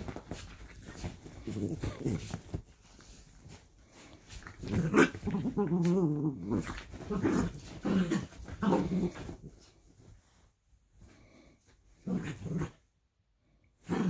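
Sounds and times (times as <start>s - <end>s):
dogs play-growling: 0.0s - 9.8s, 12.0s - 12.9s, 13.8s - 14.0s.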